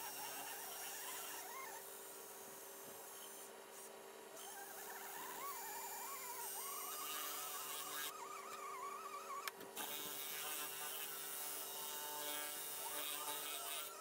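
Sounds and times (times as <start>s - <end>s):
electric drill motor whine: 4.3s - 14.0s.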